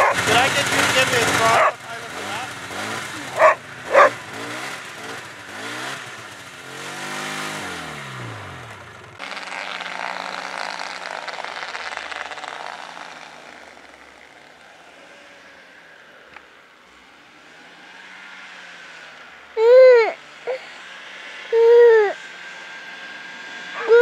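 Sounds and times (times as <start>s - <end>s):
snowmobile engine revving: 0.0s - 24.0s.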